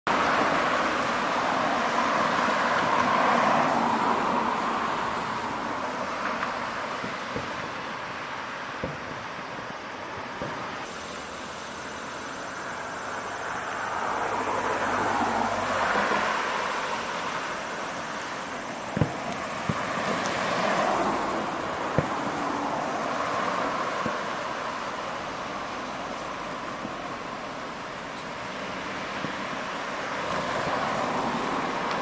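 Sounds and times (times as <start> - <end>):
rushing background noise: 0.1 - 32.0
distant fireworks bangs: 6.2 - 12.2, 16.5 - 22.7.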